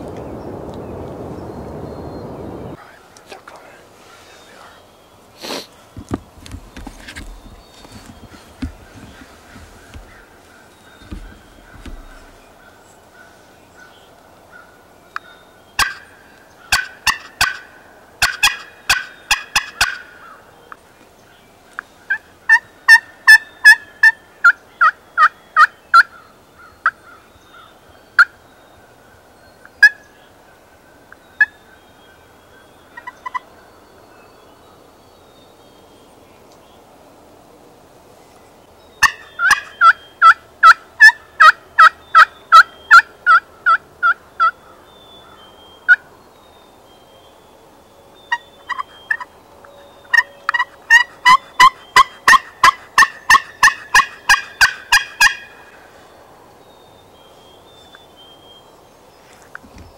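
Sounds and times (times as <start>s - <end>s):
turkey yelping: 39.0s - 44.5s, 50.1s - 55.6s.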